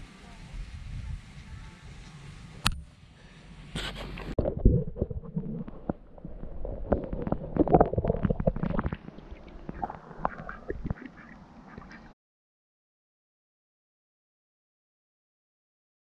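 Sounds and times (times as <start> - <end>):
mallard quacking: 10.2 - 12.1.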